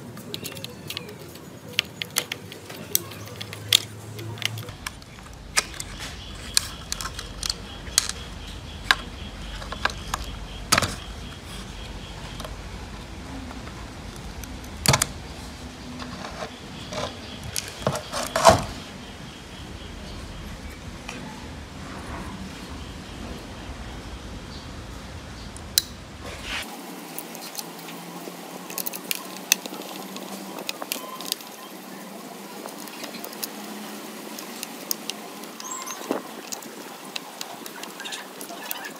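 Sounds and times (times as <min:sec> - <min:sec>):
screwdriver clicking on screws: 0:00.2 - 0:08.3, 0:28.7 - 0:31.6.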